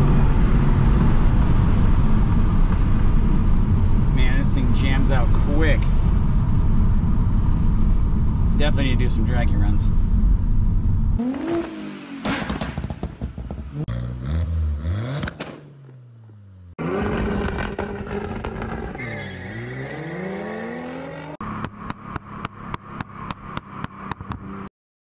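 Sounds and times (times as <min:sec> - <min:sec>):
car engine revving: 0:09.8 - 0:24.7.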